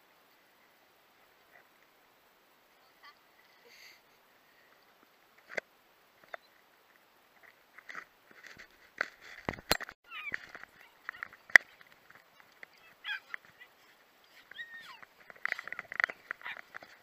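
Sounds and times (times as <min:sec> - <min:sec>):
gliding animal calls: 0:10.1 - 0:17.0.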